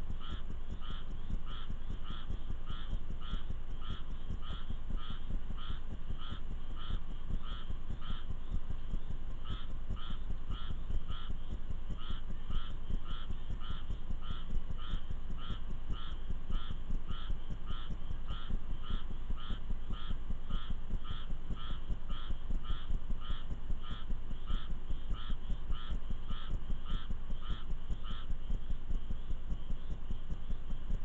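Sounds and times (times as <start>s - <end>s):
frog calling: 0.0s - 31.0s.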